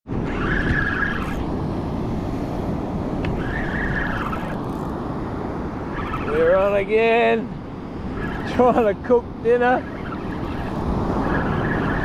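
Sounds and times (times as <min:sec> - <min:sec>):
surf: 0:00.1 - 0:12.0
wind on microphone: 0:00.1 - 0:12.0
fishing reel whirring: 0:00.2 - 0:01.6, 0:03.2 - 0:05.2, 0:05.8 - 0:08.8, 0:09.4 - 0:12.0.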